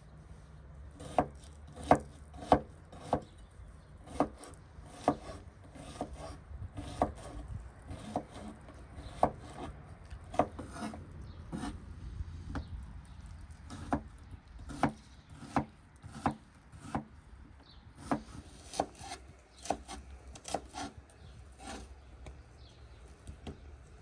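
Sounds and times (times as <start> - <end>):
knife chopping on wooden board: 1.0 - 3.3, 4.1 - 9.7, 10.3 - 11.8, 13.7 - 14.1, 14.7 - 17.1, 18.0 - 20.9.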